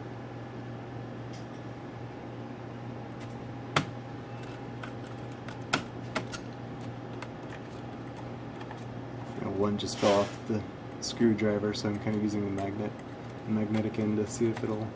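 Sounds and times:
steady low hum: 0:00.0 - 0:14.9
screwdriver clicking on metal frame: 0:11.8 - 0:14.9.

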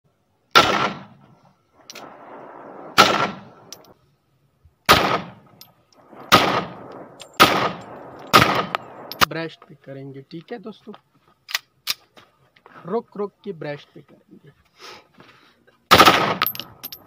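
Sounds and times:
pistol shots with echo: 0:00.5 - 0:01.2, 0:02.0 - 0:03.8, 0:04.9 - 0:05.4, 0:06.1 - 0:09.3, 0:15.9 - 0:16.6.

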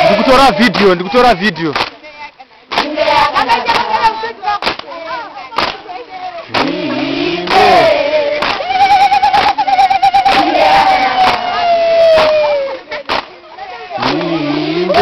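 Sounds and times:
voices singing and calling: 0:00.0 - 0:15.0
hand claps: 0:00.7 - 0:01.0, 0:01.7 - 0:02.0, 0:02.7 - 0:03.0, 0:04.6 - 0:04.9, 0:05.6 - 0:05.8, 0:07.4 - 0:07.7, 0:08.4 - 0:13.4.

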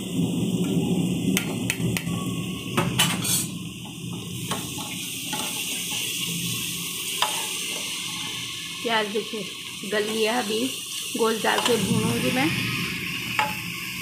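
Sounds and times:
onion and spices sizzling in pot: 0:00.0 - 0:14.0
metal cookware clattering: 0:02.8 - 0:03.6, 0:04.5 - 0:06.0, 0:07.2 - 0:07.8.

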